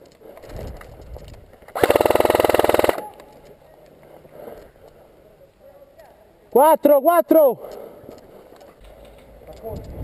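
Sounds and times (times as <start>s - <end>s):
airsoft rifle firing burst: 1.8s - 3.2s.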